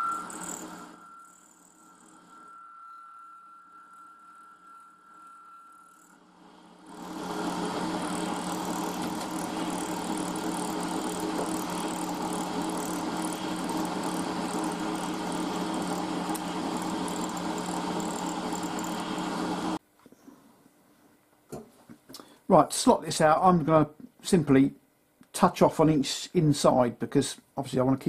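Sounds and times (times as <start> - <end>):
milling spindle hum: 0.0 - 19.8
end mill chattering on metal: 6.9 - 19.4.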